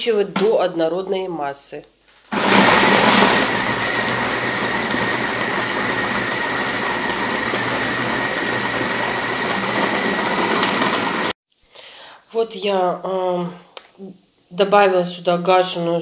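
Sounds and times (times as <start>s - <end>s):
food processor grinding: 2.4s - 11.4s.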